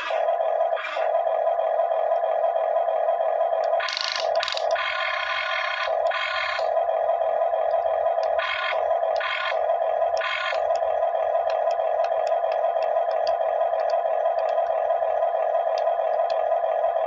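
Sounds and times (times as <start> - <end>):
toy excavator electric whine: 0.0 - 1.2, 3.6 - 17.0
short whirring bursts: 8.2 - 10.8.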